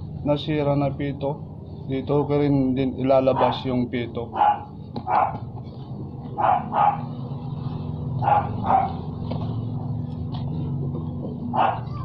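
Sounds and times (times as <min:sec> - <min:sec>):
low machine hum: 0:00.0 - 0:12.0
dog barking: 0:03.3 - 0:03.7, 0:04.3 - 0:05.5, 0:06.4 - 0:07.2, 0:08.2 - 0:09.1, 0:11.5 - 0:12.0.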